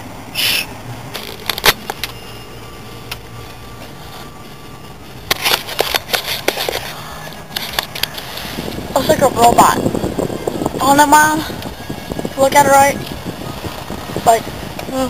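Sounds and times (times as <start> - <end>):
car idling hum: 0.0 - 15.0
camera handling rustling and clicking: 1.2 - 2.2, 5.3 - 6.9, 7.5 - 8.5.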